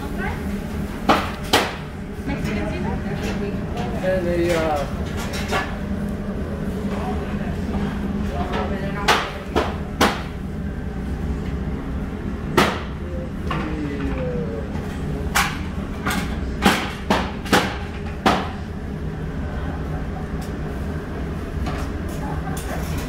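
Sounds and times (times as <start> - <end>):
ventilation hum: 0.0 - 23.0.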